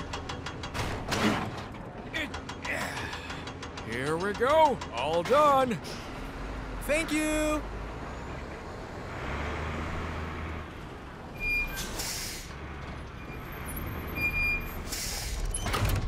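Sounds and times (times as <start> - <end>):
low truck engine hum: 0.0 - 15.6
air brake hiss: 11.8 - 12.6, 14.8 - 15.5.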